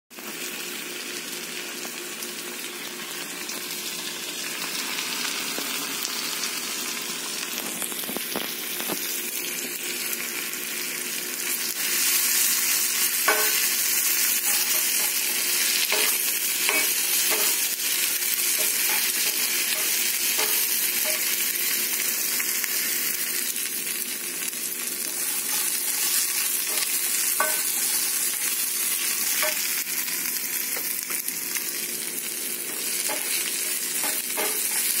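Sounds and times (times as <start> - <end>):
onions sizzling in a skillet: 0.2 - 35.0
spatula tapping and scraping pan: 13.2 - 13.7, 14.4 - 17.7, 18.6 - 21.3, 25.1 - 28.6, 29.2 - 29.6, 33.0 - 35.0.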